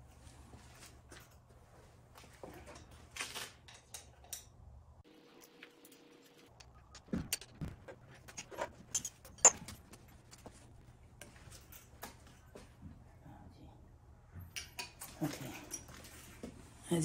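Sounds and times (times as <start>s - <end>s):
metallic clicks and rattles: 6.5s - 10.6s.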